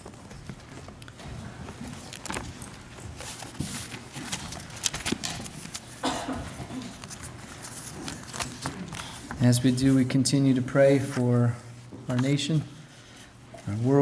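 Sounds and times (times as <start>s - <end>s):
paper rustling: 0.0s - 10.2s.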